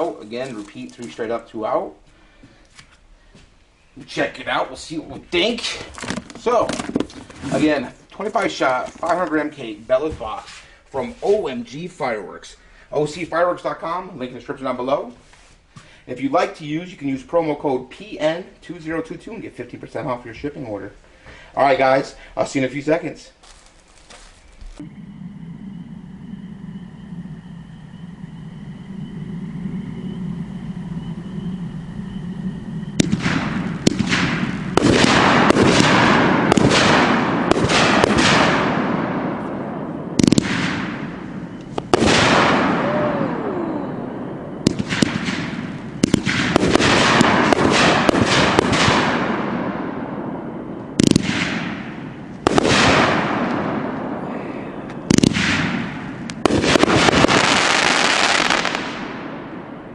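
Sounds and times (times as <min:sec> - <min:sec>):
fireworks cake firing shots: 0:33.0 - 0:39.5, 0:40.1 - 0:43.4, 0:44.6 - 0:49.9, 0:51.0 - 0:54.1, 0:55.0 - 0:59.3.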